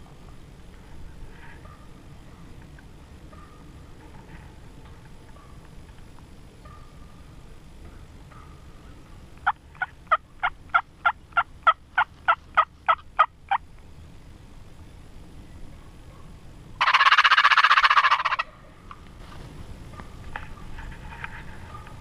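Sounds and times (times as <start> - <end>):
turkey gobble: 1.3 - 2.0, 3.2 - 5.6, 6.6 - 7.3, 8.2 - 13.6, 16.1 - 19.0, 19.9 - 22.0
turkey yelps: 16.1 - 18.8, 19.9 - 22.0.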